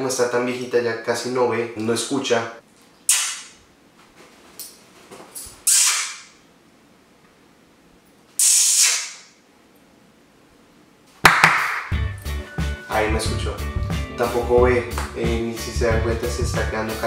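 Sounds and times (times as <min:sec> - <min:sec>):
person hissing psst: 0:03.1 - 0:03.6, 0:05.6 - 0:06.3, 0:08.4 - 0:09.3
sharp click: 0:03.1 - 0:03.6, 0:05.7 - 0:06.3.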